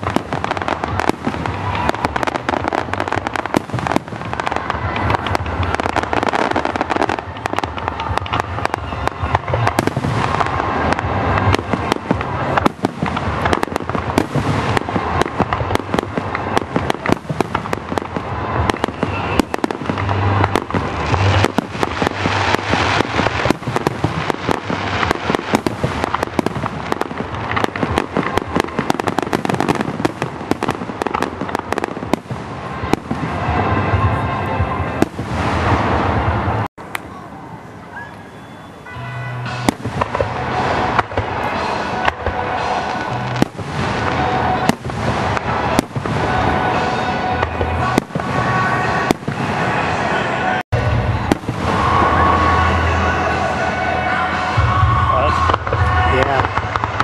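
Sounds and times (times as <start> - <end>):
fireworks crackling and popping: 0.0 - 57.0.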